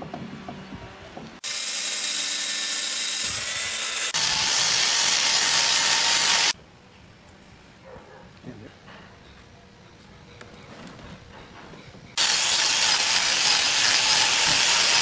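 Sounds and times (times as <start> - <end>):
angle grinder grinding wood: 1.4 - 6.6, 12.2 - 15.0
electric chainsaw cutting wood: 1.4 - 6.6, 12.2 - 15.0.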